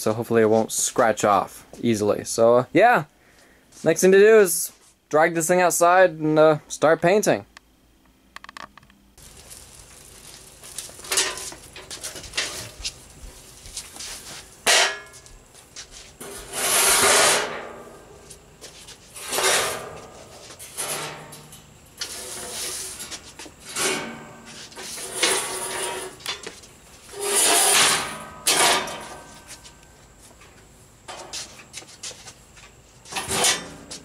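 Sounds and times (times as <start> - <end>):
metal scraping on concrete: 9.2 - 13.0, 16.2 - 18.0, 19.0 - 29.8, 33.1 - 34.0
metal frame clanking: 11.0 - 12.8, 14.6 - 15.2, 27.2 - 29.6, 33.1 - 34.0.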